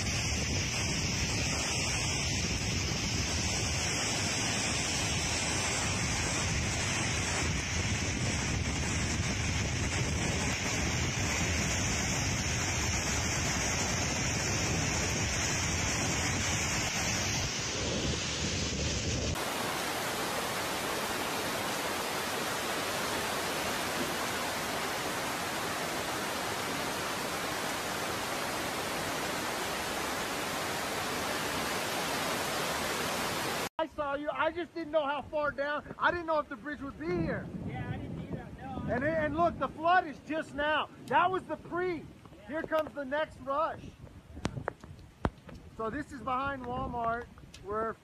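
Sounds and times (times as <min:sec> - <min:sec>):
floodwater rushing: 0:00.0 - 0:33.7.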